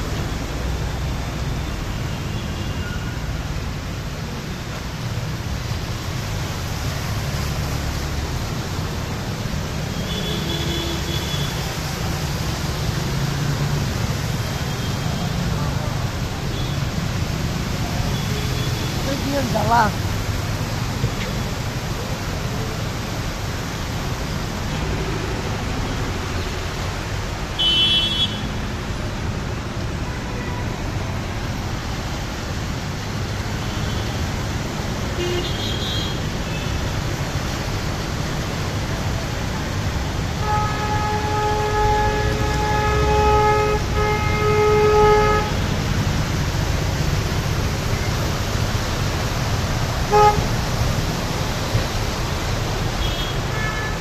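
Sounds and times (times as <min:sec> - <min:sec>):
vehicles driving through water: 0:00.0 - 0:54.0
vehicle horn blasts: 0:27.6 - 0:28.4, 0:40.4 - 0:45.6, 0:50.1 - 0:50.5.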